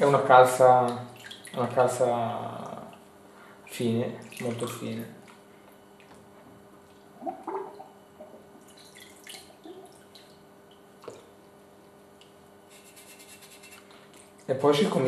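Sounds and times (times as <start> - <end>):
water sloshing and dripping: 0.8 - 1.9, 4.0 - 11.5
small water splashes: 0.9 - 1.8, 4.1 - 5.4, 8.6 - 11.3.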